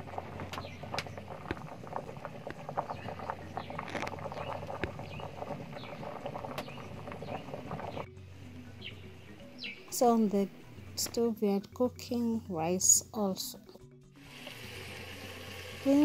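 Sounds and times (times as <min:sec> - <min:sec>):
firewood crackling and popping: 0:00.0 - 0:08.1
pot boiling and bubbling: 0:00.0 - 0:08.2, 0:14.2 - 0:16.0.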